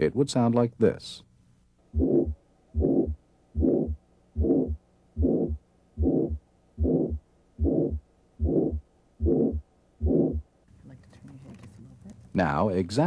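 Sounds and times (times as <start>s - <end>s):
whooshing heartbeat through stethoscope: 2.0s - 10.4s
low heartbeat thumps: 2.0s - 10.5s.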